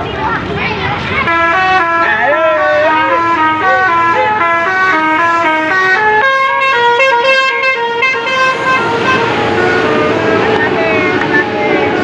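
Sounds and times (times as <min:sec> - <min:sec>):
bus rushing past: 0:00.0 - 0:12.0
bus air horn playing a tune: 0:01.2 - 0:10.4.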